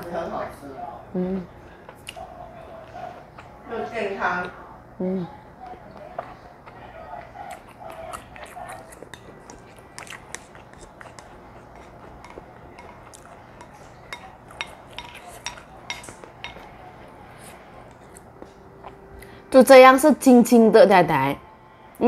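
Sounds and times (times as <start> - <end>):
spoon clinking on ceramic bowl: 11.1 - 16.7.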